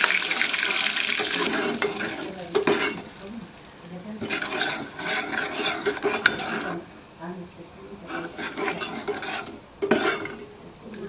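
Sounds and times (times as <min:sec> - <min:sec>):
metal ladle scraping a pot: 0:00.3 - 0:03.2, 0:04.2 - 0:06.9, 0:08.0 - 0:10.6
ladle knocking on pot: 0:01.2 - 0:03.1.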